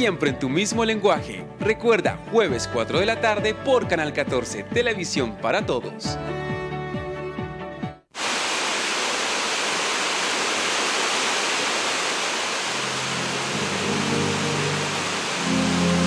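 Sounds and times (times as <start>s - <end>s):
steady rushing hiss: 8.2s - 16.0s
low music: 13.0s - 16.0s.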